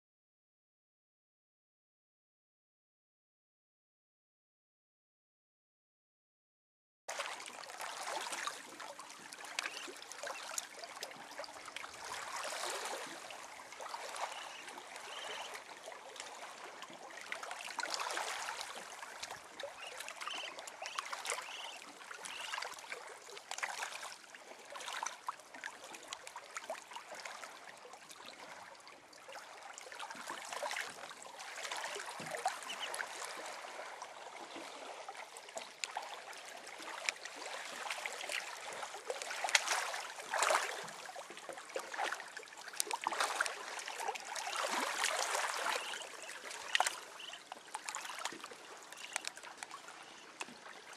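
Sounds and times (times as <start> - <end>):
water trickling among rocks: 7.2 - 13.1, 17.8 - 26.3, 41.9 - 50.6.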